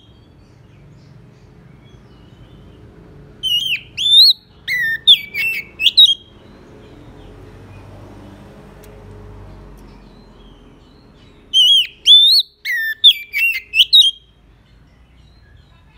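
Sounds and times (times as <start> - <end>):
bird singing whistled notes: 3.4 - 7.1, 9.9 - 15.9.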